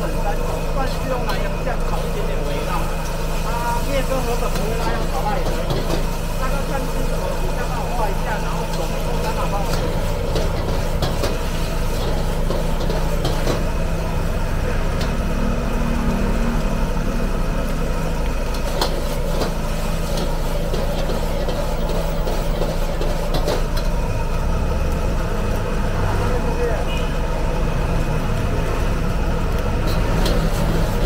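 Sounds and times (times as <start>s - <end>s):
ladle scraping a wok: 0.0s - 16.8s, 17.5s - 24.3s, 29.8s - 31.0s
gas burner hum and rush: 0.0s - 31.0s.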